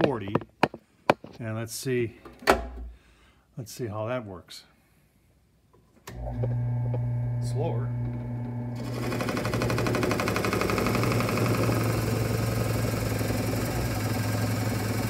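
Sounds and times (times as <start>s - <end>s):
drill press motor hum: 6.1s - 15.0s.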